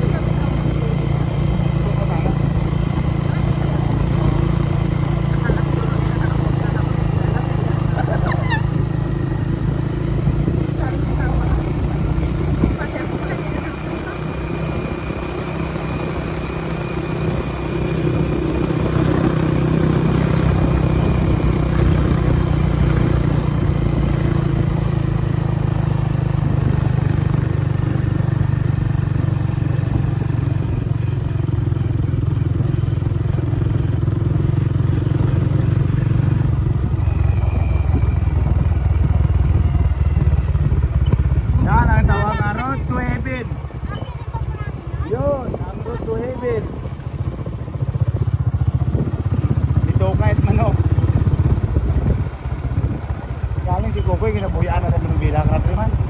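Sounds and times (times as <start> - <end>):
motorcycle engine running: 0.0 - 56.0
road noise: 0.0 - 56.0
wind noise: 36.7 - 53.8.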